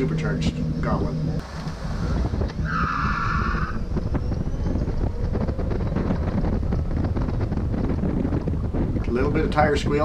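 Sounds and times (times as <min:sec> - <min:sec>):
wind rushing: 0:00.0 - 0:10.0
tire squeal: 0:01.9 - 0:06.4.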